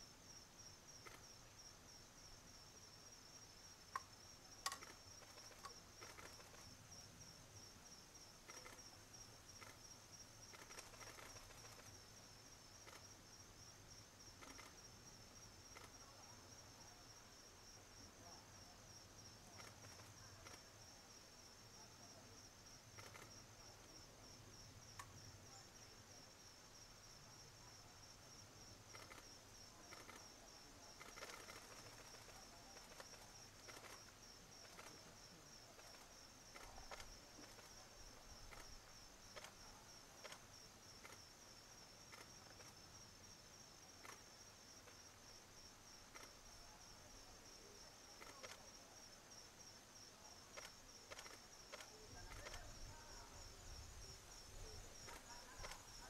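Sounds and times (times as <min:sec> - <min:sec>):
faint clicks: 0:01.0 - 0:01.2, 0:03.9 - 0:06.6, 0:08.4 - 0:09.0, 0:09.6 - 0:09.8, 0:10.5 - 0:12.0, 0:12.8 - 0:13.1, 0:14.4 - 0:14.8, 0:15.7 - 0:16.0, 0:19.5 - 0:20.7, 0:22.9 - 0:23.4, 0:24.9 - 0:25.2, 0:28.9 - 0:30.3, 0:30.9 - 0:35.1, 0:35.8 - 0:37.8, 0:38.4 - 0:39.6, 0:40.2 - 0:41.2, 0:42.1 - 0:42.8, 0:44.0 - 0:45.0, 0:46.1 - 0:46.4, 0:48.2 - 0:48.7, 0:50.6 - 0:52.7, 0:55.0 - 0:56.0.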